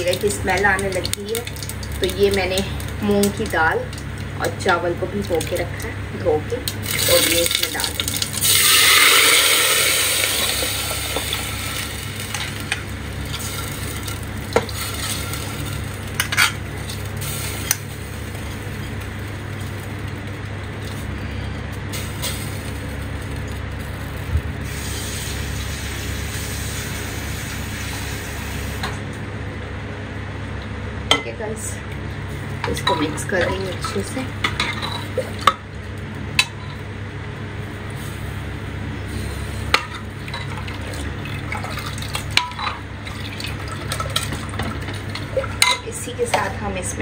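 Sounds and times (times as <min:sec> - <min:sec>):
wet rice sizzling in hot oil: 0:06.6 - 0:28.8.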